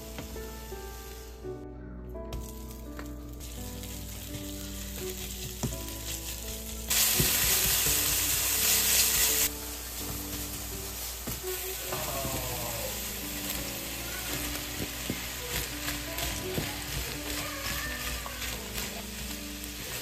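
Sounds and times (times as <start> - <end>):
meat sizzling in frying pan: 0.0 - 1.5, 2.3 - 20.0
spatula taps: 4.3 - 6.5, 7.1 - 10.6, 13.4 - 20.0.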